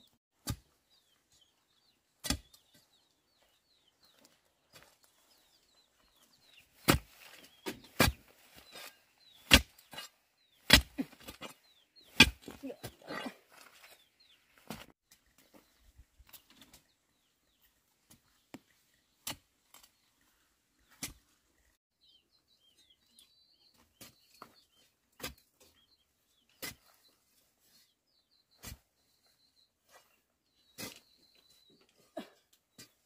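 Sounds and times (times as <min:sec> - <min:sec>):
small birds chirping: 0:00.0 - 0:33.0
metal bar thudding into stony soil: 0:02.2 - 0:02.7, 0:06.8 - 0:12.6.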